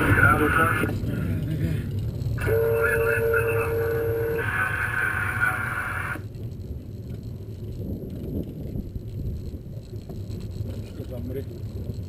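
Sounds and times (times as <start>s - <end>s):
aircraft low rumble: 0.0s - 12.0s
high droning tone: 2.2s - 6.4s.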